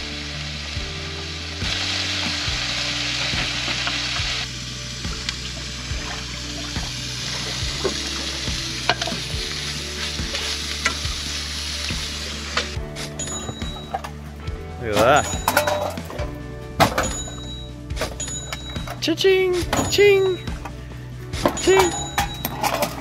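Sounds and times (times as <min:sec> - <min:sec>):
food sizzling in a pan: 0:00.0 - 0:13.7.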